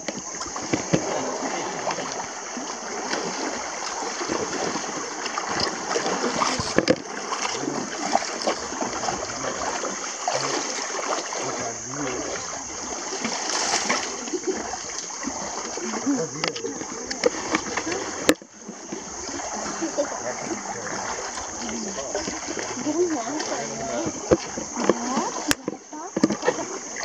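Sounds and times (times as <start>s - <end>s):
river water running and splashing: 0.0s - 27.0s.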